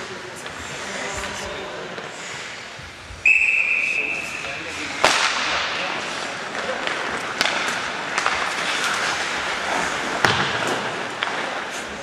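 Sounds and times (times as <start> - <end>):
hockey sticks clacking puck: 0.0 - 2.6, 4.3 - 12.0
skates scraping on ice: 4.2 - 12.0.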